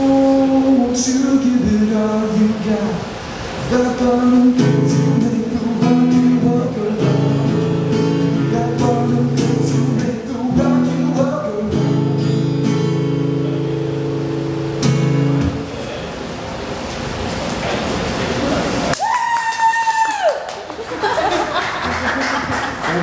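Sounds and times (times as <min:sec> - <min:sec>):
acoustic guitar strumming: 0:00.0 - 0:15.8.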